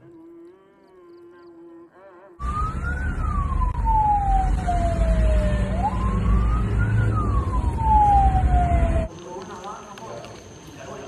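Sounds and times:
car driving rumble: 2.4 - 9.1
siren wailing: 2.4 - 9.1.

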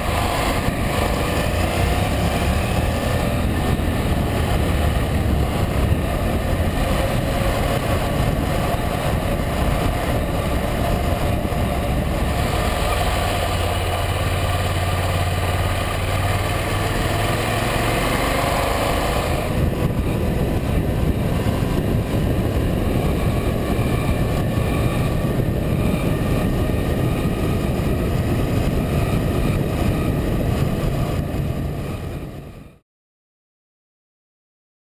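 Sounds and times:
motorcycle engine running: 0.0 - 32.8
road noise: 0.0 - 32.8
wind rush: 0.0 - 32.8.

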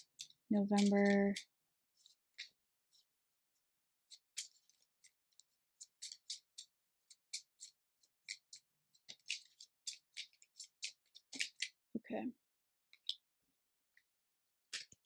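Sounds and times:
cards being shuffled: 0.0 - 1.4, 4.1 - 5.2, 5.8 - 11.8.

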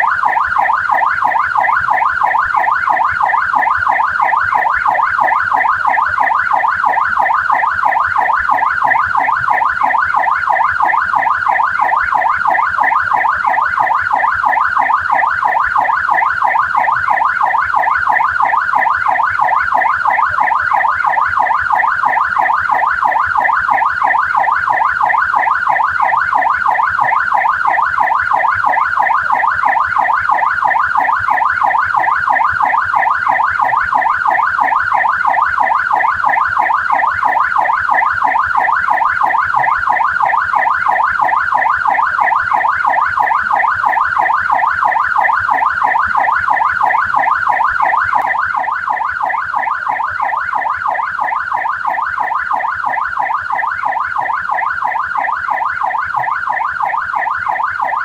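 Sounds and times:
police siren yelping: 0.0 - 58.0.

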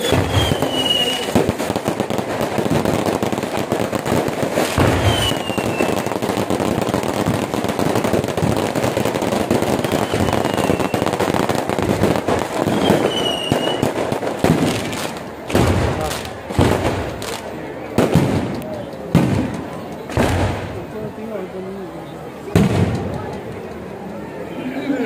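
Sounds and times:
falling firework whistles: 0.0 - 1.8, 4.5 - 6.2, 9.5 - 15.0
fireworks crackling and popping: 0.0 - 24.4.

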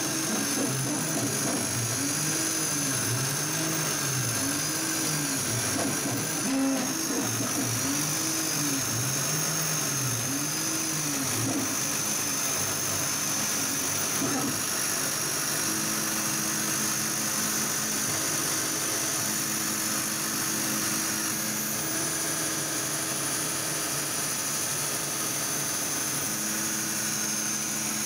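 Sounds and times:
stepper motors whining: 0.0 - 22.4.

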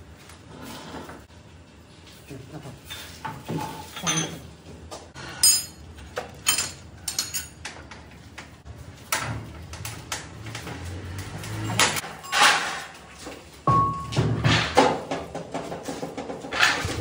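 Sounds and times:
metal clinks and knocks: 5.4 - 7.8, 10.4 - 16.9.

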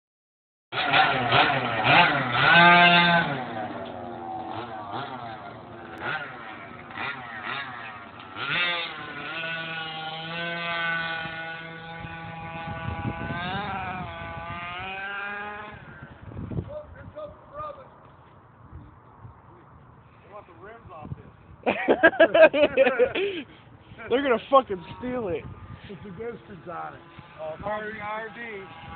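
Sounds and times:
small rc car engine revving: 0.8 - 16.1, 24.8 - 28.9.

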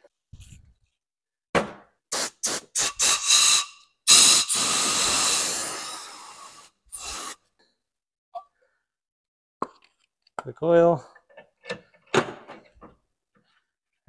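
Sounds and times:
compressed-air blow gun hissing: 2.1 - 7.4.

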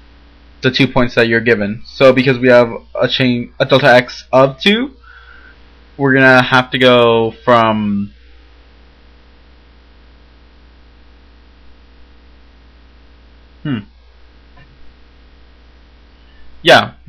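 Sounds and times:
electrical mains hum: 0.0 - 17.0
person making falling vocal sound: 13.6 - 13.9.

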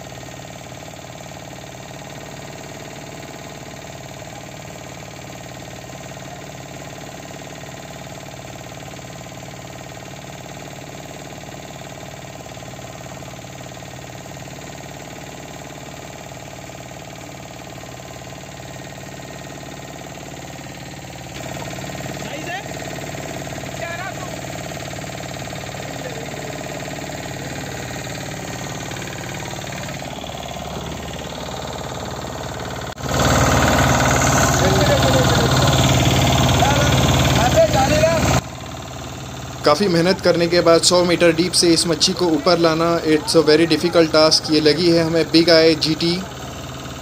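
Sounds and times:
boat engine running: 0.0 - 47.0.

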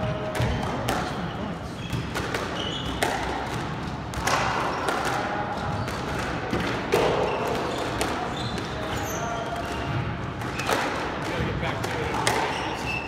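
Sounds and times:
squash ball cracking off rackets: 0.2 - 1.3, 1.9 - 12.8
shoes squeaking on wooden floor: 1.6 - 3.0, 7.2 - 9.9.

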